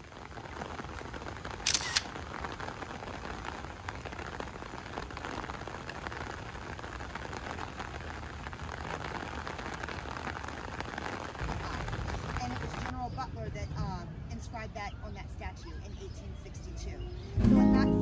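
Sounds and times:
rain on an umbrella: 0.0 - 13.0.

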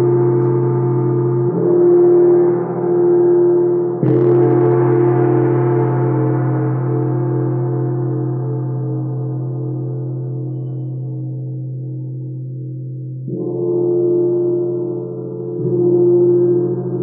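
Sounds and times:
gong-like metal ringing: 0.0 - 11.2.

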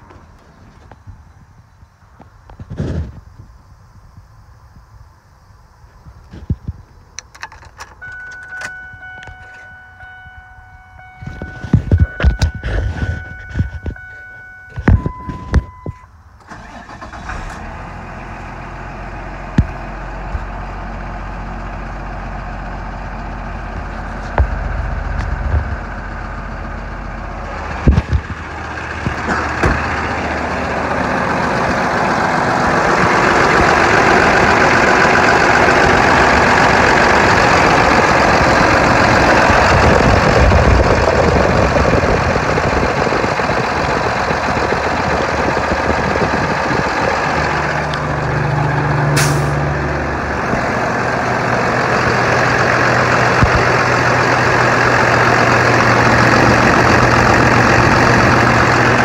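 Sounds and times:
truck engine cranking and idling: 6.2 - 59.0
dashboard warning tones: 7.3 - 16.8.

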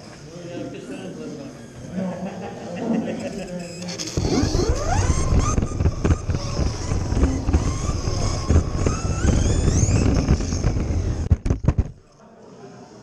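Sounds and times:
electric motor whining: 3.4 - 12.0
small car rumbling on carpet: 4.2 - 12.0.

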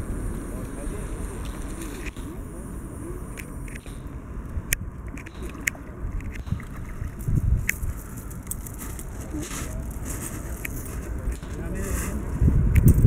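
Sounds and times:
wind rumbling on microphone: 0.0 - 13.0
sharp clicks: 3.2 - 8.8.

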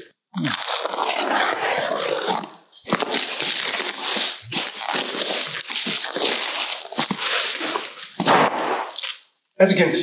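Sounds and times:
packing material crinkling: 0.0 - 9.3.

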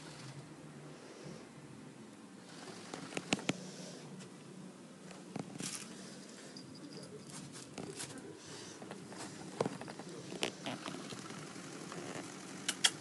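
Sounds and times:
sharp clicks: 12.6 - 13.0.

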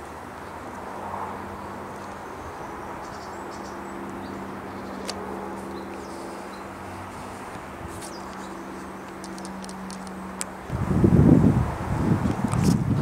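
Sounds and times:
small birds chirping: 1.5 - 10.5.

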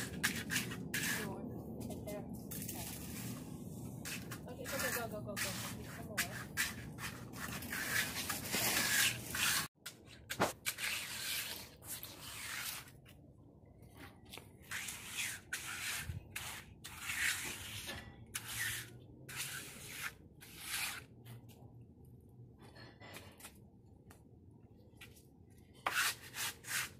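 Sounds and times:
trowel scraping wet concrete: 0.0 - 1.4, 4.0 - 13.0, 14.6 - 21.2, 25.8 - 26.9.

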